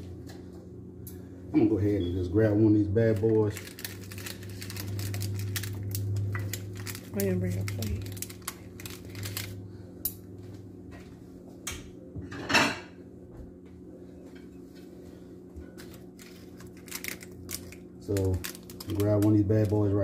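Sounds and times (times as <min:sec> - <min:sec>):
steady low hum: 0:00.0 - 0:20.0
dishes and utensils clattering: 0:12.2 - 0:13.0.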